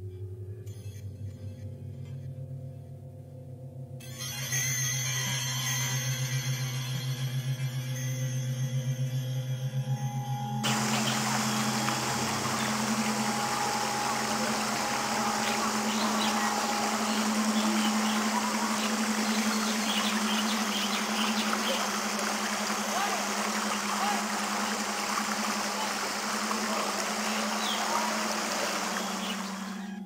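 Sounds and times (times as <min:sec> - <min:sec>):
small engine humming: 0:10.1 - 0:30.0
faint high chirps: 0:10.3 - 0:30.0
flowing water: 0:10.6 - 0:30.0.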